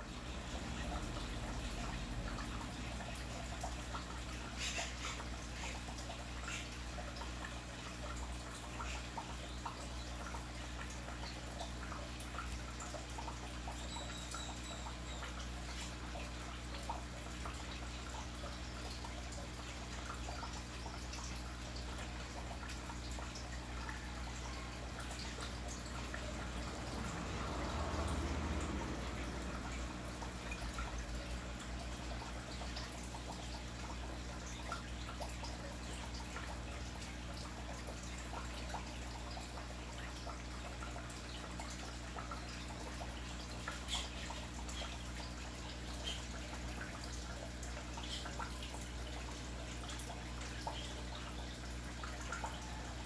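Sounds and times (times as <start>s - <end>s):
aquarium water trickling and bubbling: 0.0s - 53.0s
water drips and splashes: 0.0s - 53.0s.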